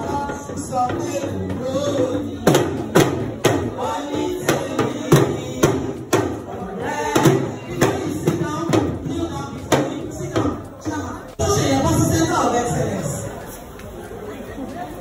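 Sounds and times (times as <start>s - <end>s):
person singing: 0.0s - 11.8s
drum beat: 0.0s - 12.7s.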